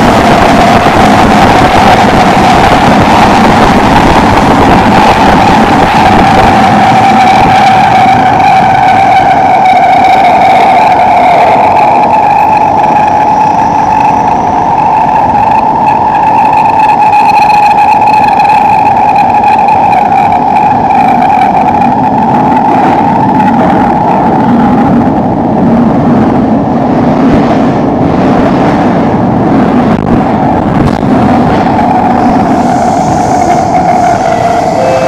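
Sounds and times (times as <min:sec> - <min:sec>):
wheels rumbling on rail: 0:00.0 - 0:35.0.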